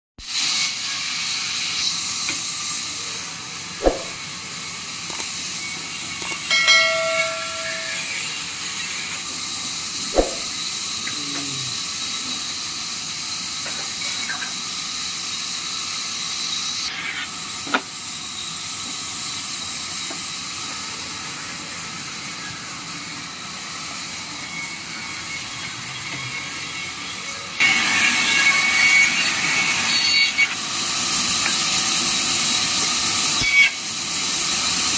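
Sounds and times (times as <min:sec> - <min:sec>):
sawmill hissing: 0:00.2 - 0:34.9
band saw cutting wood: 0:03.8 - 0:04.2, 0:05.0 - 0:08.8, 0:10.0 - 0:10.6.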